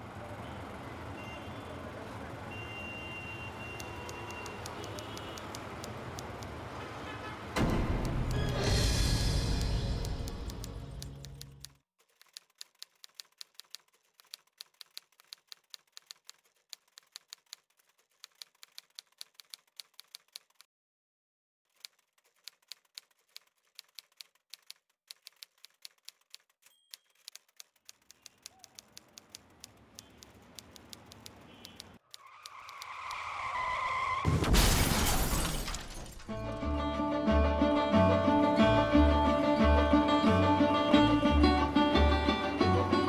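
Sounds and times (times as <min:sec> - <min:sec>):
typewriter keystroke clicks: 0:21.8 - 0:32.0.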